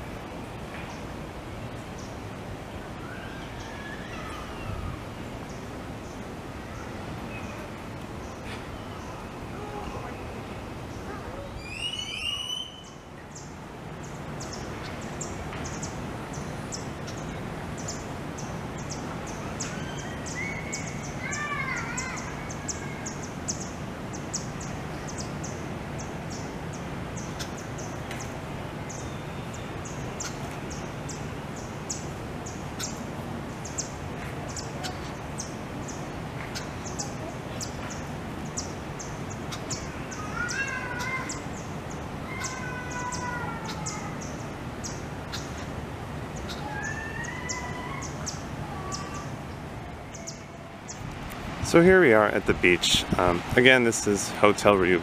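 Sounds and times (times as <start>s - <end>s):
steady background hiss: 0.0s - 55.0s
birds chirping: 0.7s - 55.0s
descending whistled bird call: 3.0s - 5.0s, 11.4s - 13.1s, 18.8s - 23.7s, 46.4s - 49.3s.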